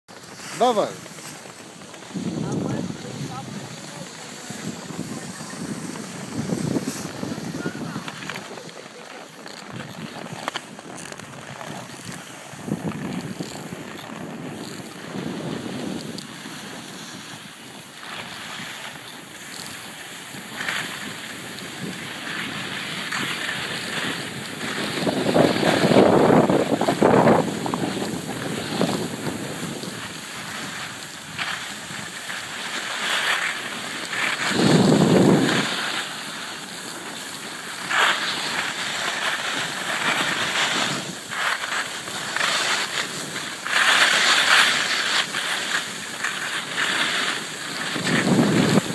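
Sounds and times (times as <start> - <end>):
skis sliding on snow: 0.1 - 48.9
wind buffeting microphone: 2.0 - 8.7, 9.7 - 17.8, 19.6 - 32.6, 34.2 - 36.0, 47.6 - 48.9.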